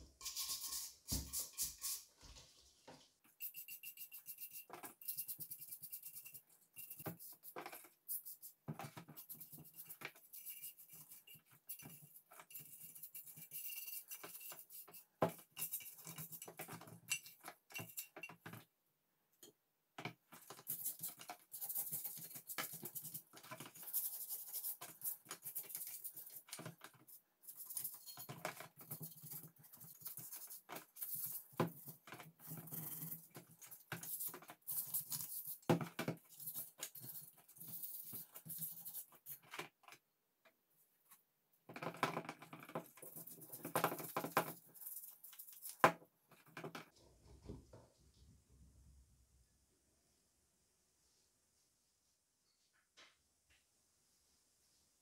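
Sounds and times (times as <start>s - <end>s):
brush scrubbing wet metal: 0.2s - 16.5s.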